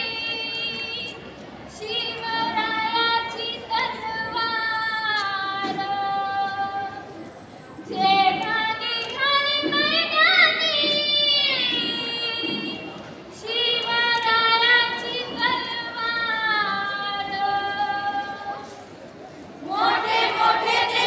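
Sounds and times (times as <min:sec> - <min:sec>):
children singing: 0:19.6 - 0:21.0.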